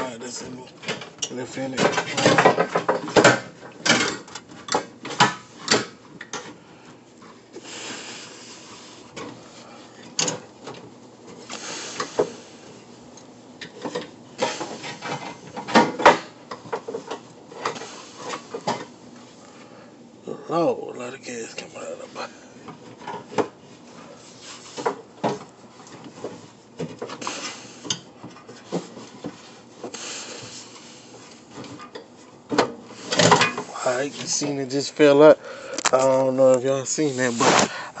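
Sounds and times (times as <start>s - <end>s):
clothing rubbing on microphone: 37.0s - 37.7s.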